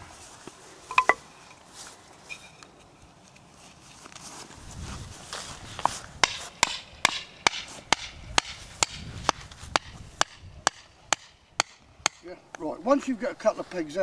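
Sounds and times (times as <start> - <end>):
rustling: 0.0 - 6.6
mallet striking tent peg: 0.9 - 1.2, 6.2 - 12.2.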